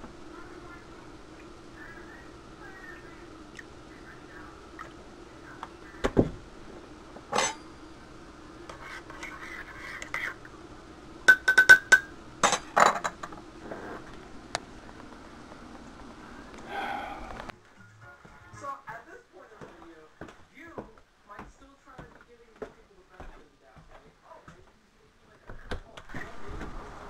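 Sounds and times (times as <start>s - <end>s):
faint steady hum: 0.0s - 27.0s
spoon clinking against mug: 7.4s - 7.7s, 11.3s - 12.6s
spoon stirring coffee in a mug: 8.7s - 10.4s, 11.3s - 13.2s.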